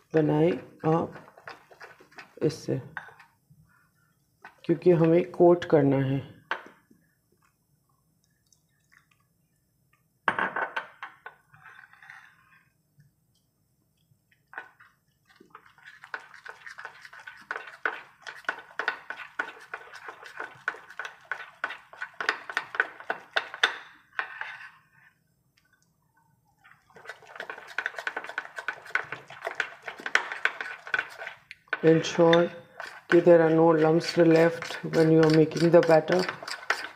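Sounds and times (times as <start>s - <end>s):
spoon scraping ceramic bowl: 0.5s - 3.3s, 11.5s - 12.6s, 15.5s - 25.0s, 27.0s - 36.9s.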